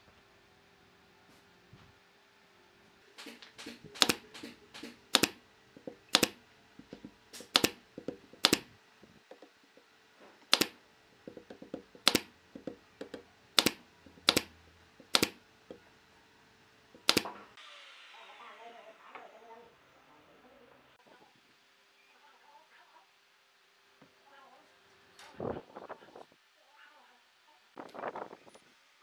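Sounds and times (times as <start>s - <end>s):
nail gun firing: 3.2s - 5.4s, 6.1s - 6.4s, 7.3s - 7.8s, 8.4s - 8.8s, 10.5s - 10.8s, 12.0s - 12.3s, 13.6s - 15.4s, 17.0s - 17.4s.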